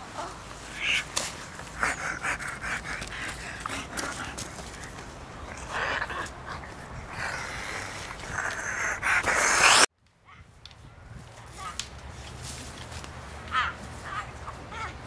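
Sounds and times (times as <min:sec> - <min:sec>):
person breathing heavily: 0:00.7 - 0:04.9, 0:05.5 - 0:09.9
loud hissing burst: 0:08.6 - 0:09.9.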